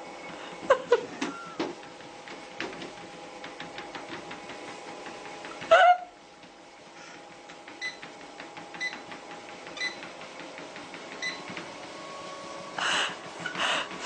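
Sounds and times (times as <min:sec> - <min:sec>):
treadmill motor hum: 0:00.0 - 0:14.0
light pattering footsteps: 0:01.7 - 0:12.0.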